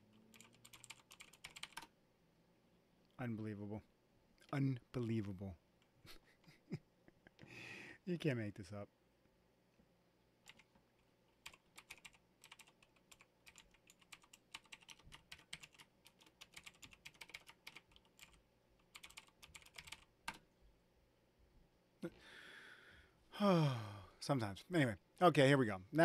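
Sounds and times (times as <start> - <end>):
computer keyboard typing: 0.1 - 1.9, 10.4 - 10.7, 11.3 - 20.4.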